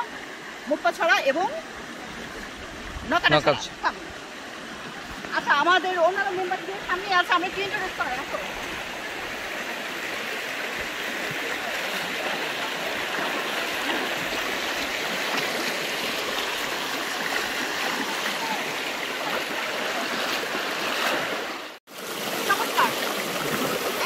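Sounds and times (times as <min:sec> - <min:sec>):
stream rushing over rocks: 0:00.0 - 0:24.0
voices: 0:22.5 - 0:24.0.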